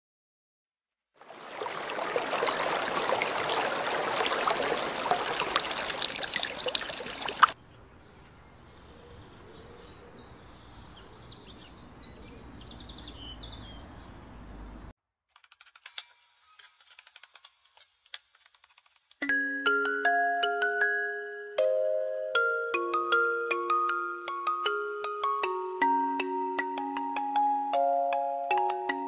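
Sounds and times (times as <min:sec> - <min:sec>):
birds chirping and trilling: 0:01.6 - 0:14.9.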